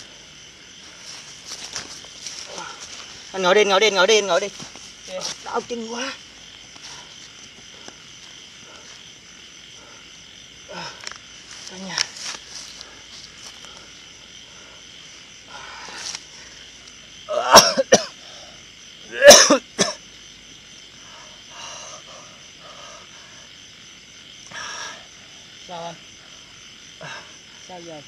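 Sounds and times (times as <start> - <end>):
night insects chirring: 0.0 - 28.0
person coughing hard: 17.3 - 18.2, 19.1 - 20.0.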